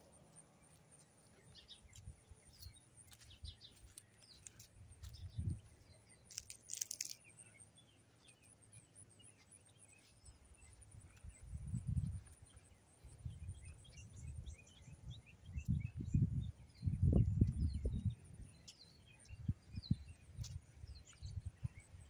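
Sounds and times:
bird chirps: 0.0s - 22.0s
low rumbles on microphone: 5.1s - 5.7s, 13.2s - 18.2s
high insect trill: 6.2s - 7.3s.

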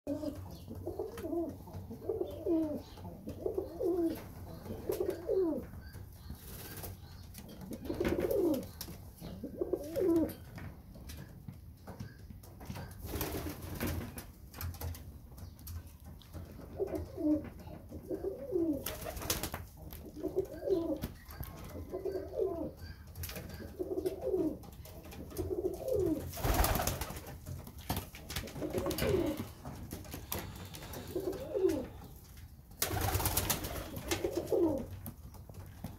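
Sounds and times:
pigeons cooing: 0.1s - 10.4s, 16.4s - 27.2s, 28.2s - 32.2s, 32.8s - 35.0s.

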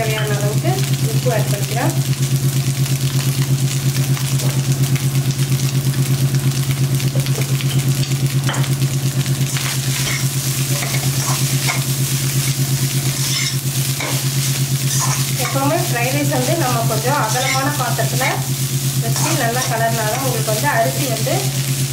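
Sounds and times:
rice sizzling: 0.0s - 21.9s
pulsing low hum: 9.0s - 21.9s
spatula scraping a pan: 9.5s - 18.5s, 19.1s - 20.5s.

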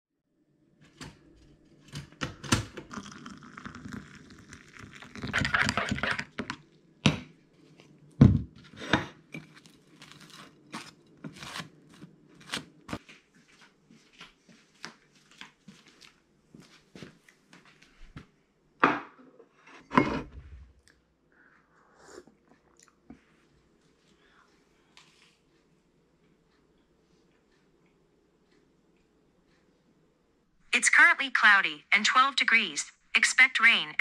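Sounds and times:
spoon scraping and clinking: 2.9s - 6.4s, 9.3s - 11.5s
metal spoon stirring in mug: 2.9s - 6.5s.

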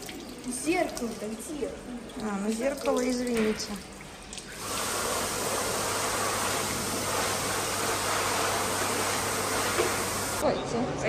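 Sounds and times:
hand dryer blowing air: 4.6s - 10.4s.

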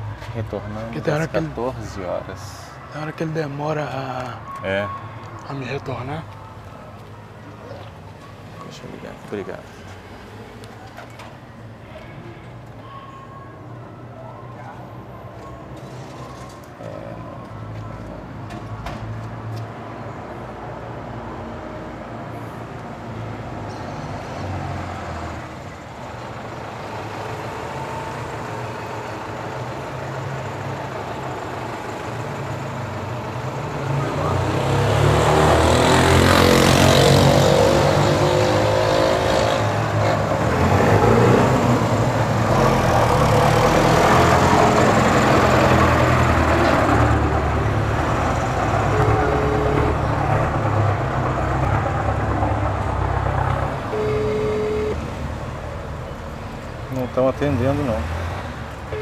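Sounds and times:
street traffic: 0.0s - 59.0s
vehicle engine passing close: 33.5s - 56.8s.

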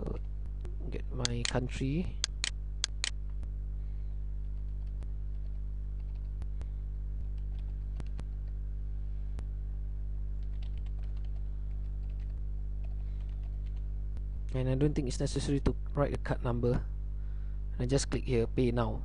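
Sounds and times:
low electrical hum: 0.0s - 19.0s
keyboard typing clicks: 2.2s - 3.2s, 4.5s - 6.4s, 10.4s - 13.8s.

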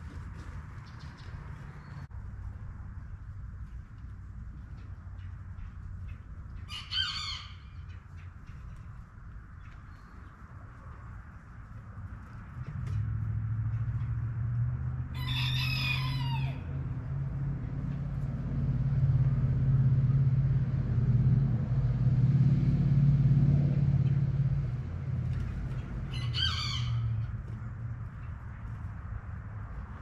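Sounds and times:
low engine hum: 0.0s - 30.0s
rooster crowing: 6.7s - 7.8s, 15.1s - 16.8s, 26.1s - 27.3s.

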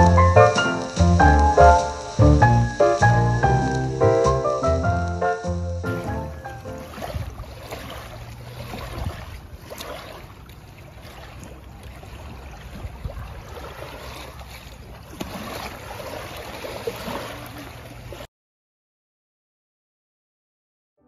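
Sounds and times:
low rumble: 0.0s - 6.9s
stream water running: 0.0s - 18.3s
small water splashes: 6.0s - 18.3s.

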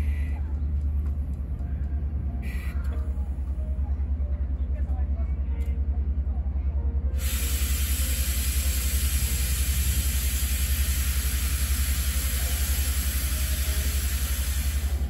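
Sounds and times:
steam locomotive hissing: 7.2s - 15.0s.

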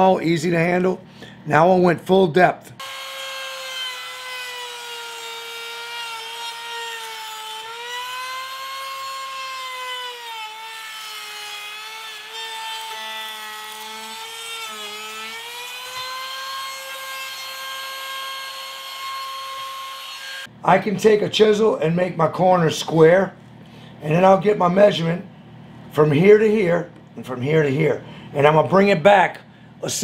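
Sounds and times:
router motor whining: 2.8s - 20.5s.

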